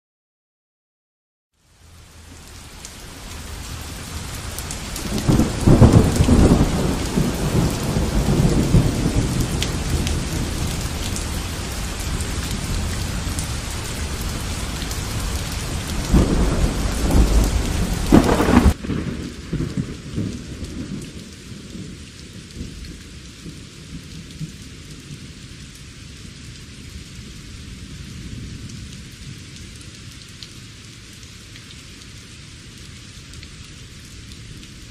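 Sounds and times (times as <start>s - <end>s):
heavy rain falling: 1.6s - 34.9s
muffled rain heard indoors: 1.6s - 34.9s
rolls of thunder: 16.1s - 21.0s.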